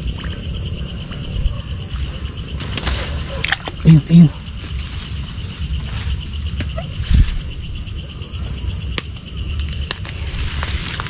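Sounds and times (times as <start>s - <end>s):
insect chirps: 0.0s - 11.0s
insects buzzing: 0.0s - 11.0s.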